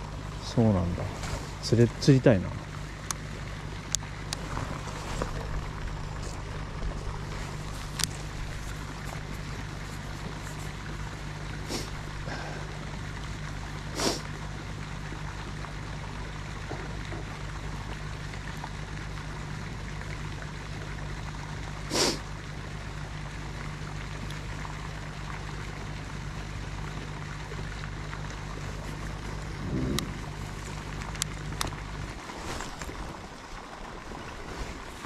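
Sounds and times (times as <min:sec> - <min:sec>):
low hum: 0:00.0 - 0:35.0
running water: 0:00.0 - 0:35.0.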